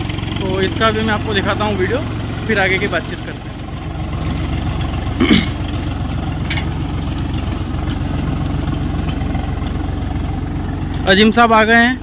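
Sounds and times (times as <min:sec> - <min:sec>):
tractor diesel engine running: 0:00.0 - 0:12.0.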